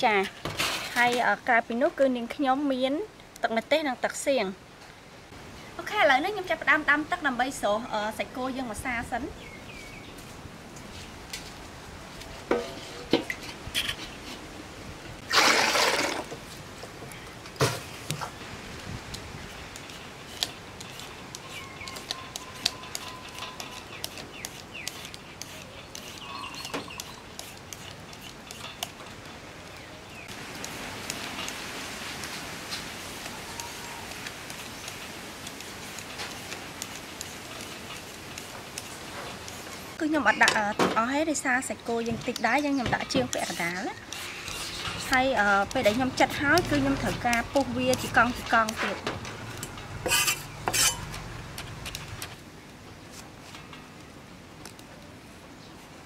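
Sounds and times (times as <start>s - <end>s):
cleaver scraping on wooden block: 19.8s - 29.0s, 42.1s - 51.2s
steady hiss: 24.0s - 40.3s.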